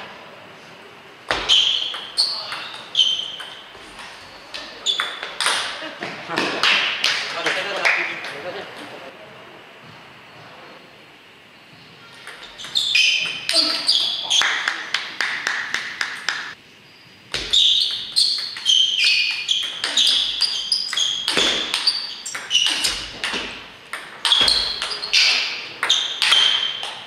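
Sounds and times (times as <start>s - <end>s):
ping pong ball clicking off bats: 4.5s - 5.7s, 17.3s - 27.0s.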